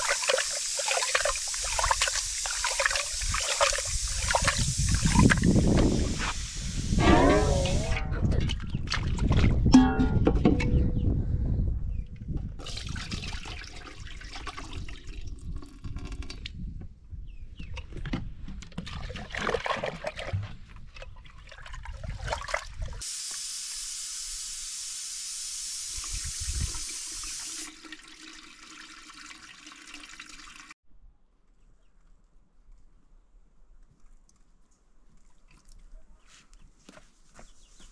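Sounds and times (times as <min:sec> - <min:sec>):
water splashing: 0:00.0 - 0:05.8
steady stream of water: 0:00.0 - 0:09.6.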